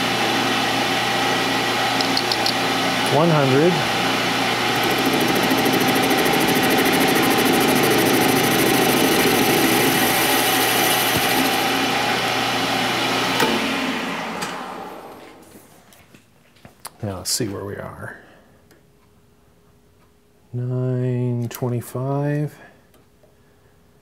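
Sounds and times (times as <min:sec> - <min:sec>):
metal lathe cutting steel: 0:03.0 - 0:12.3.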